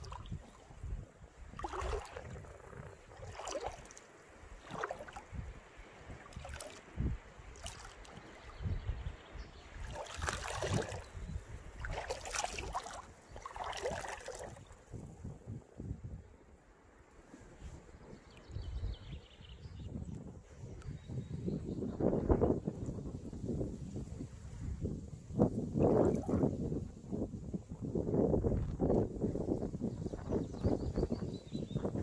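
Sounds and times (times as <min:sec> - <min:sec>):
rubber boots sloshing through water: 0:00.0 - 0:00.6, 0:01.5 - 0:08.7, 0:09.7 - 0:15.1.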